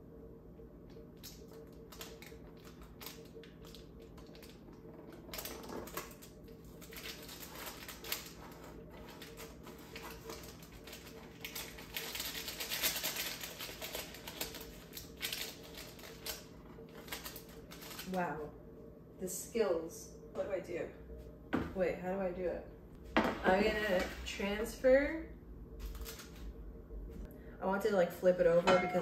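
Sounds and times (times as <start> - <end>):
parchment paper crackling: 1.2 - 18.2, 25.8 - 26.5.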